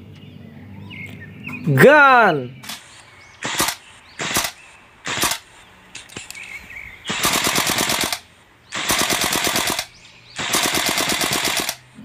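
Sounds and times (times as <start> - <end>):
automatic gunfire bursts: 2.6 - 5.5, 7.0 - 11.9
rifle single shots: 2.6 - 6.4, 7.0 - 11.9.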